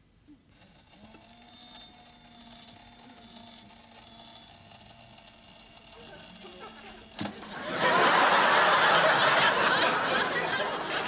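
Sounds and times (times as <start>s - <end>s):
small electric motor whirring: 0.4s - 7.6s.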